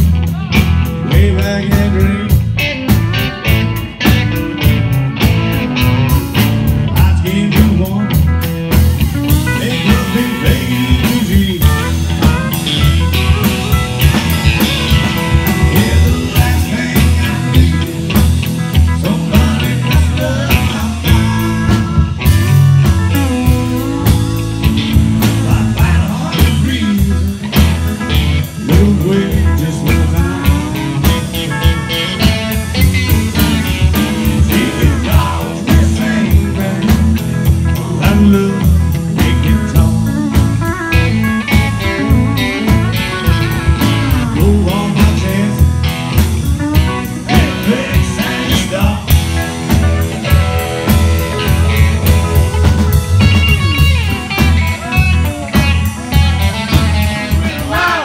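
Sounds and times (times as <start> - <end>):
bass guitar: 0.0 - 58.0
drum kit beat: 0.0 - 58.0
electric guitar: 0.0 - 58.0.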